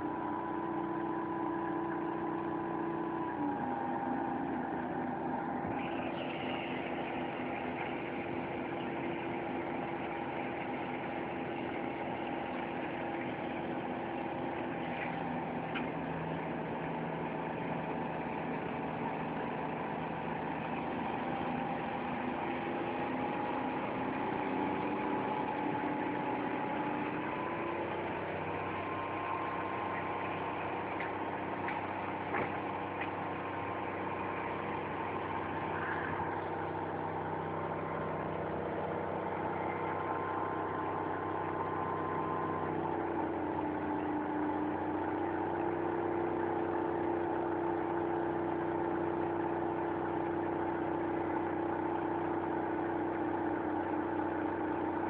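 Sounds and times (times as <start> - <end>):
truck engine running: 0.0 - 55.0.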